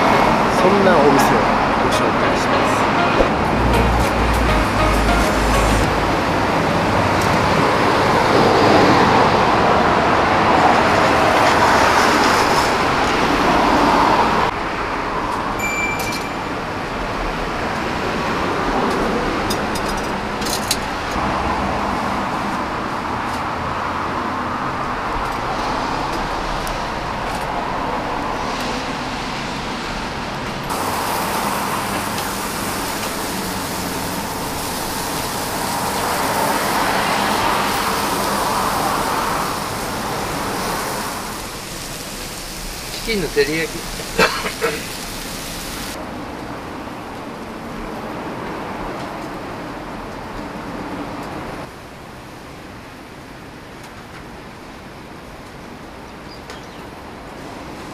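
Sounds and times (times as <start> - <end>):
road traffic noise: 0.0 - 57.9.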